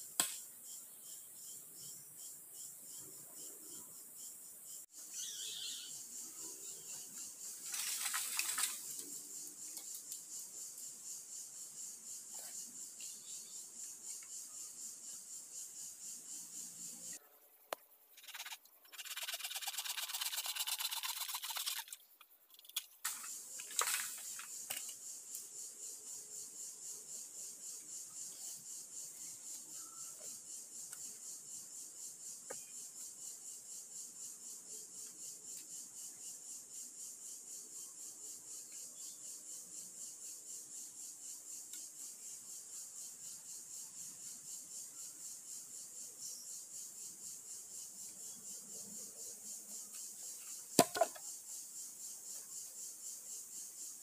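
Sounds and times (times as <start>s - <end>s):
pulsing insect chorus: 0.0s - 17.3s, 18.0s - 54.0s
bamboo knocks: 50.8s - 51.2s.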